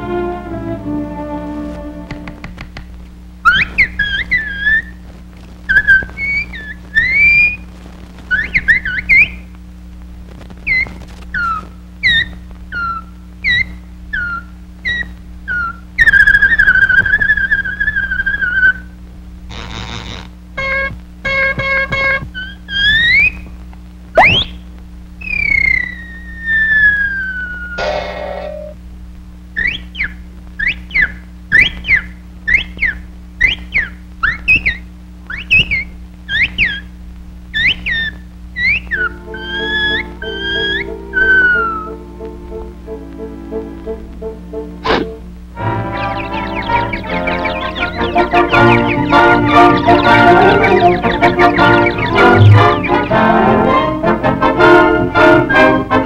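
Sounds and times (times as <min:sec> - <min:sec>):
low steady soundtrack hum: 0:00.0 - 0:22.6, 0:27.1 - 0:56.0
whistled cartoon bird chirps: 0:03.4 - 0:05.0, 0:05.7 - 0:07.6, 0:08.3 - 0:09.5, 0:10.7 - 0:18.9, 0:20.6 - 0:23.4, 0:24.2 - 0:24.6, 0:25.2 - 0:28.8, 0:29.6 - 0:36.9, 0:37.5 - 0:42.0, 0:44.9 - 0:53.9, 0:55.2 - 0:56.0.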